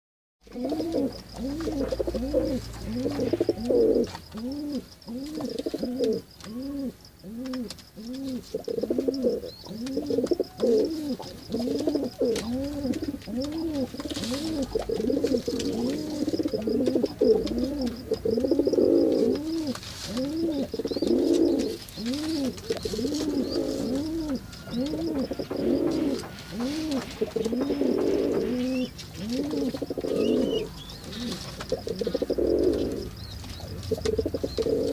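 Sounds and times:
pigeon cooing: 0:00.4 - 0:34.9.

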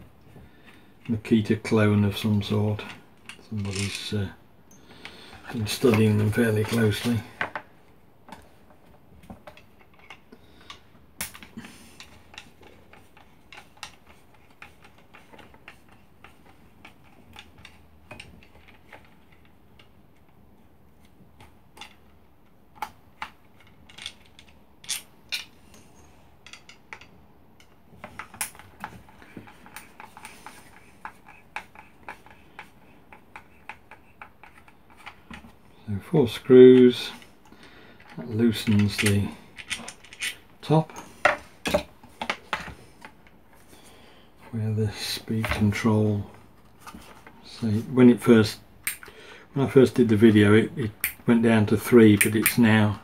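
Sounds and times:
small clicks and taps of parts handled: 0:08.3 - 0:20.4, 0:21.0 - 0:35.6, 0:37.1 - 0:43.7, 0:48.8 - 0:49.1.

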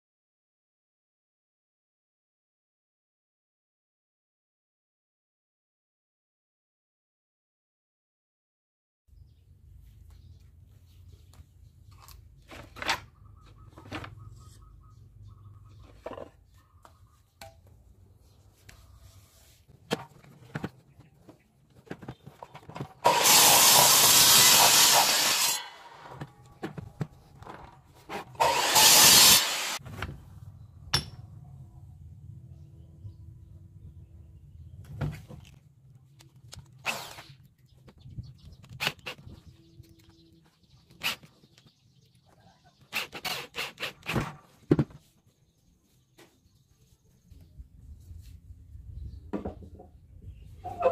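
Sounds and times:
short rasp: 0:42.9 - 0:44.4.

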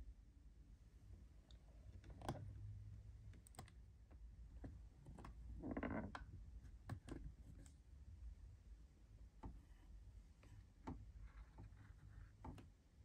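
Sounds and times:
faint plastic clicks and taps: 0:01.4 - 0:05.4, 0:06.0 - 0:07.8, 0:09.4 - 0:09.8, 0:10.4 - 0:12.8.

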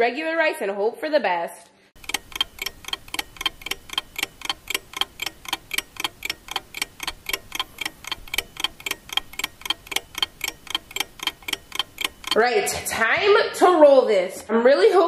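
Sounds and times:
fast clock ticking: 0:02.0 - 0:13.7.

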